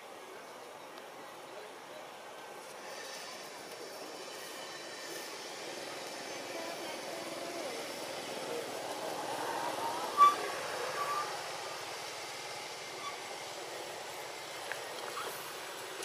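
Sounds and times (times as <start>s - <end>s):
outdoor background noise: 0.0s - 16.0s
high squeak: 10.1s - 11.4s.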